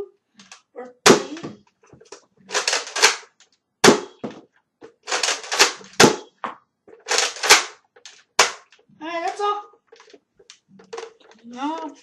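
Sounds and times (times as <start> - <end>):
rattle of handling blaster: 2.0 - 3.5, 4.9 - 6.2, 7.0 - 8.8
toy blaster shots: 2.5 - 4.2, 5.1 - 6.3, 7.1 - 7.8.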